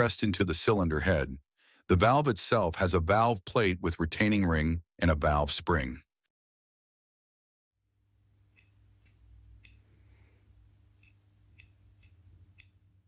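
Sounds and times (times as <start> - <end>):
low room hum: 8.1 - 13.0
faint light clicks: 8.6 - 9.9, 11.0 - 12.8.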